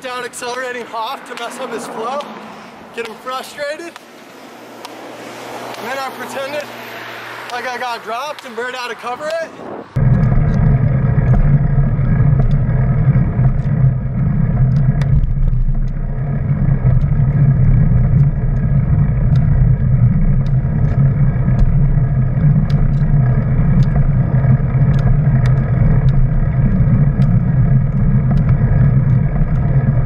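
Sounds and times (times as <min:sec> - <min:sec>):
roller-ski wheels rolling on asphalt: 0:00.0 - 0:30.0
ski-pole tips clicking on pavement: 0:00.0 - 0:30.0.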